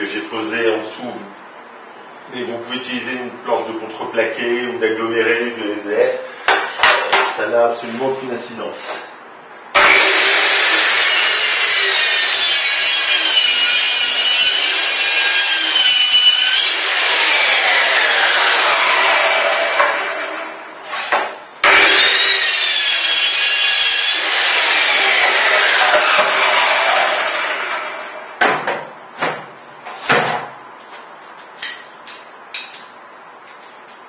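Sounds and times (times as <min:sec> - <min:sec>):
circular saw whining: 0:09.8 - 0:28.4.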